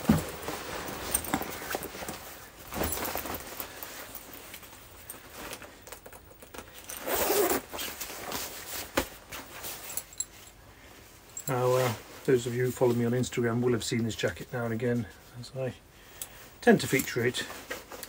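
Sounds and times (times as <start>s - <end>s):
stiff canvas rustling: 0.0s - 13.6s
metal zip being pulled: 6.0s - 8.0s.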